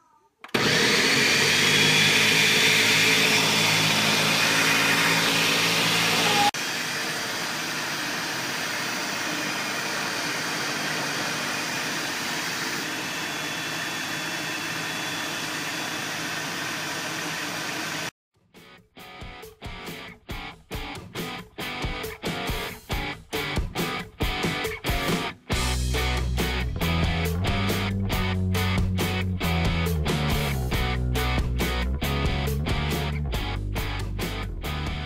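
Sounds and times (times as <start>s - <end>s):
blender motor running: 0.5s - 18.1s.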